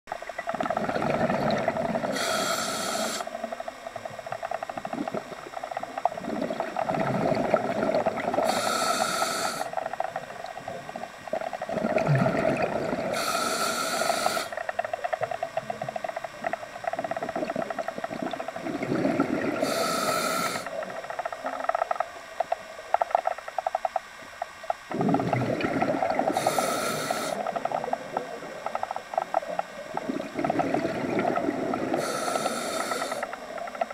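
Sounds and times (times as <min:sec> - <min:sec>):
bubbles gurgling: 0:00.2 - 0:23.7, 0:24.8 - 0:33.9
regulator breathing hiss: 0:02.1 - 0:03.4, 0:08.4 - 0:09.8, 0:13.1 - 0:14.7, 0:19.6 - 0:20.9, 0:26.3 - 0:27.5, 0:31.9 - 0:33.5.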